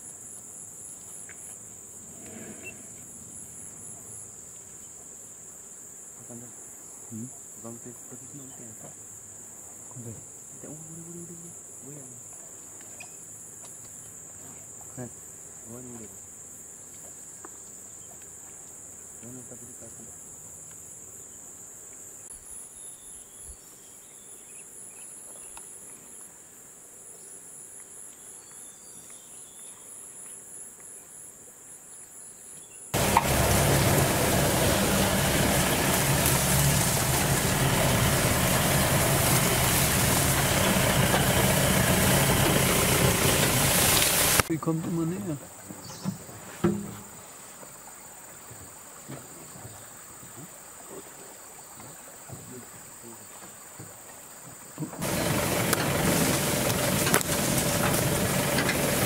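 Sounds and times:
insect chorus: 0.0s - 59.0s
jeep engine running: 33.0s - 44.5s, 55.0s - 59.0s.

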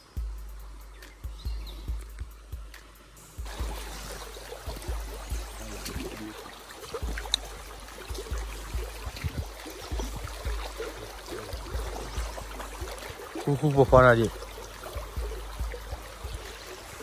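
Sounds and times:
stream water rushing: 0.0s - 17.0s
low rumbles on microphone: 3.4s - 16.8s.

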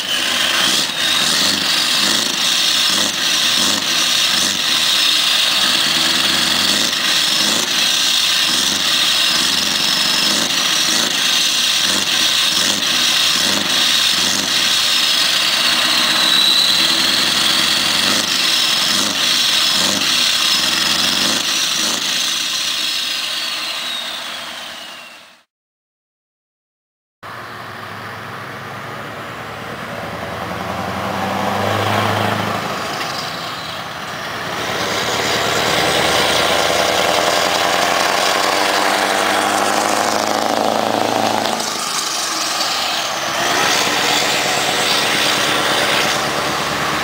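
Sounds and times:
diesel engine running: 0.0s - 25.2s, 27.3s - 47.0s
faint high whistle: 15.8s - 17.6s, 23.1s - 25.4s.

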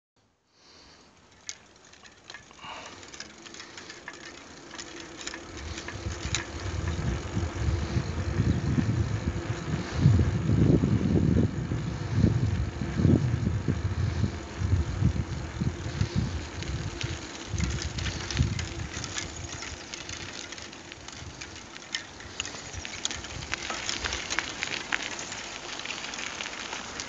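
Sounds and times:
wheels rumbling on asphalt: 0.7s - 27.0s
wind buffeting microphone: 5.0s - 25.1s.

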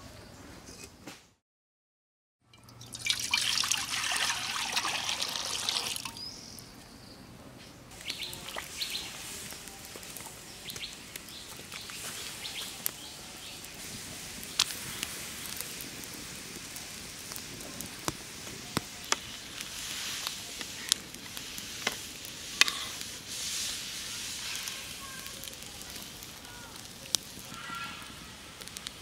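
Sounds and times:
water pouring into iron pan: 2.5s - 6.2s, 8.4s - 8.9s.

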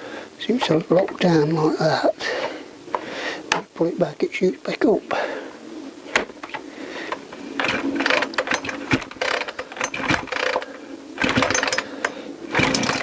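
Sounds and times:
chainsaw recoil starter ratcheting: 7.6s - 13.0s
engine turning over: 7.6s - 13.0s.

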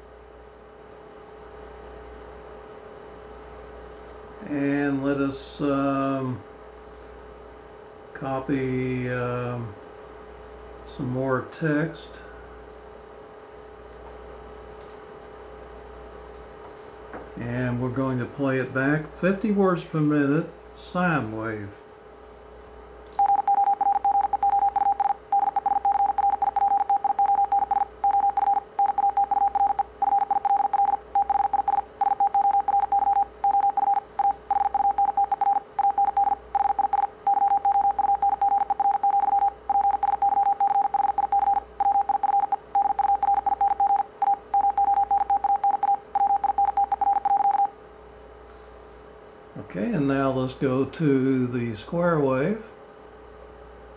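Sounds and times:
morse code tone beeping: 23.2s - 47.7s.

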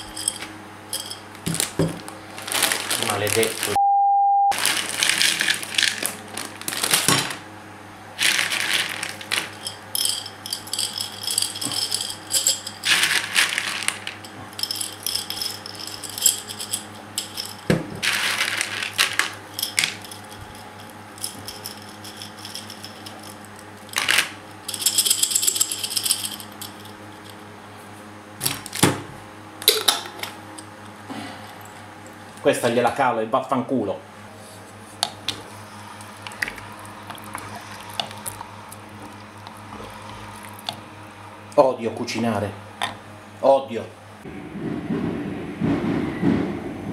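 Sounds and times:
pasta rattling in plastic bag: 0.0s - 3.8s, 4.5s - 7.4s, 8.2s - 26.9s.

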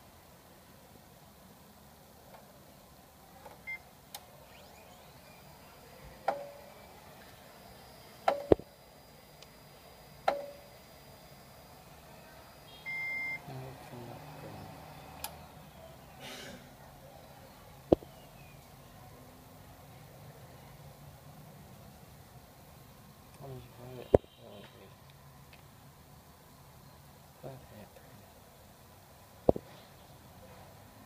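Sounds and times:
printer control panel beep: 3.6s - 5.6s, 8.2s - 8.7s, 10.2s - 10.7s, 12.7s - 13.5s
printer alert beep: 4.4s - 5.6s, 8.2s - 8.7s, 10.3s - 10.7s, 12.6s - 13.5s.

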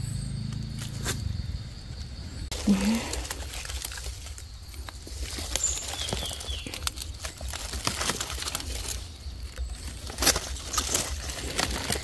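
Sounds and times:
dry leaves crackling and rustling: 2.5s - 12.0s.

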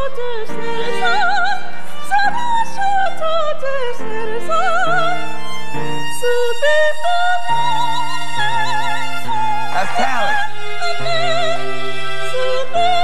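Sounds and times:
woman singing operatically: 12.3s - 13.0s.

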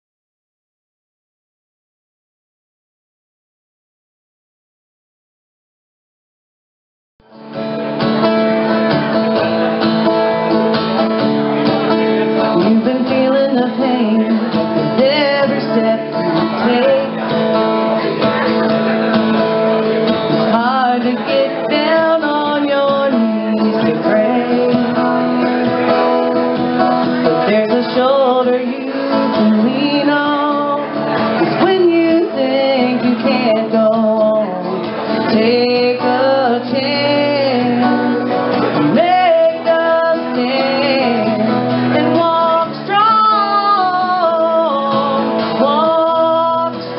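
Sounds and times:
strummed acoustic guitar: 7.2s - 46.9s
woman singing: 12.5s - 17.3s, 20.5s - 25.6s, 27.2s - 46.9s.

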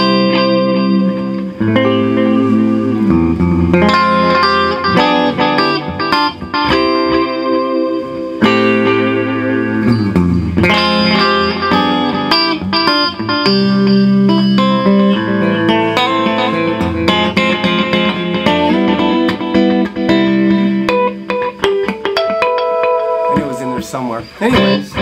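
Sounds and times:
fingerpicked electric guitar with echo: 0.0s - 25.0s.

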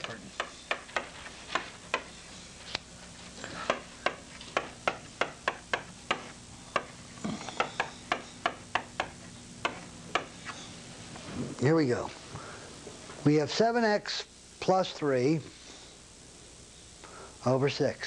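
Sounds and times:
chalk tapping and scraping on chalkboard: 0.0s - 2.2s, 3.7s - 6.9s, 7.6s - 10.6s
faint steady hum: 0.0s - 18.0s.

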